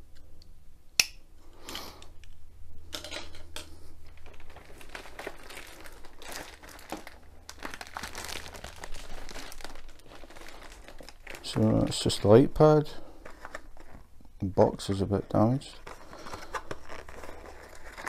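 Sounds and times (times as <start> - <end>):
plastic air cushioning crinkling: 4.0 - 18.0.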